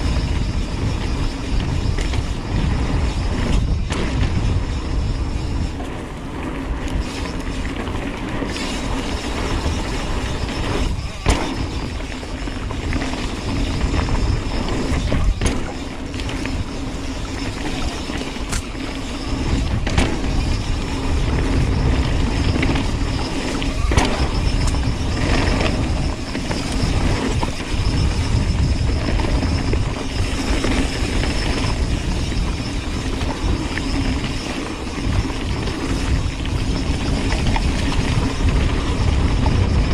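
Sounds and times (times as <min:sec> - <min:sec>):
bike knocking and clattering: 0:00.0 - 0:39.9
tyres rolling on dirt: 0:00.0 - 0:39.9
wind noise on microphone: 0:00.0 - 0:39.9.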